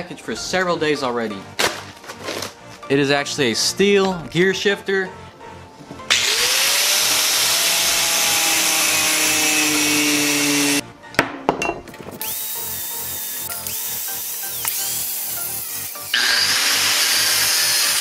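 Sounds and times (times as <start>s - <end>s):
angle grinder grinding metal: 6.1s - 10.8s, 12.2s - 18.0s.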